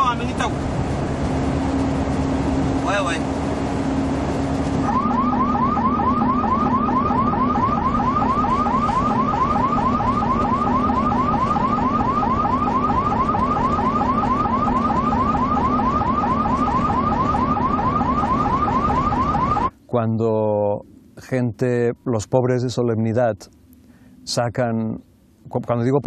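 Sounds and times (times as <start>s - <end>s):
ambulance siren yelping: 4.8s - 19.7s.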